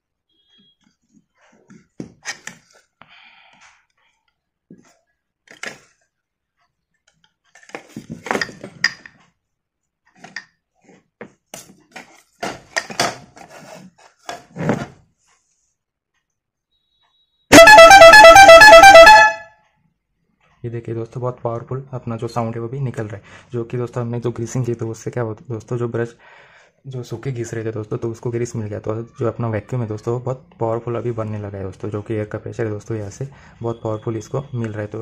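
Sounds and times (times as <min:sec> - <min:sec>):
plastic parts clicking and knocking: 0:04.8 - 0:06.0, 0:07.0 - 0:09.4, 0:10.0 - 0:14.6
electric air horn blast: 0:17.5 - 0:19.5.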